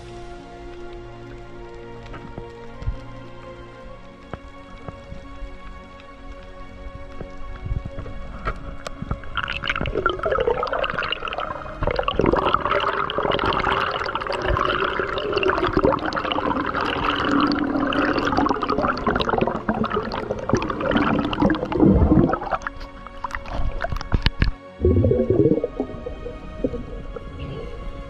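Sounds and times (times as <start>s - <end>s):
underwater bubbling: 4.1s - 28.0s.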